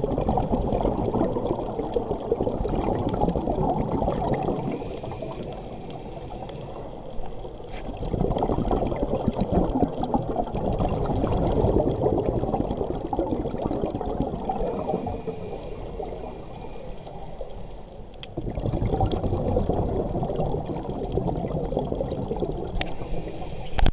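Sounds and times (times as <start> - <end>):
underwater exhaust bubbles: 0.0 - 23.9.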